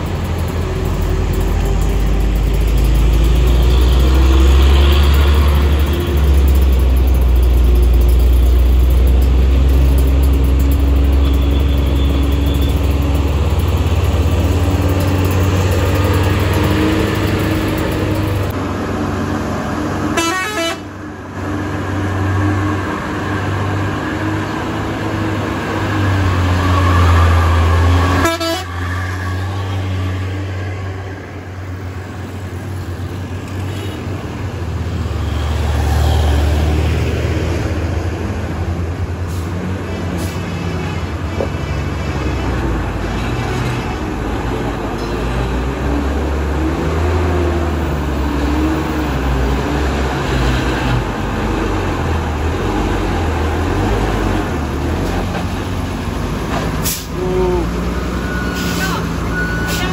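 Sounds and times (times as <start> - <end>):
diesel truck engines rumbling: 0.0 - 59.9
vehicle horns: 11.1 - 13.2, 20.1 - 20.9, 28.0 - 29.0.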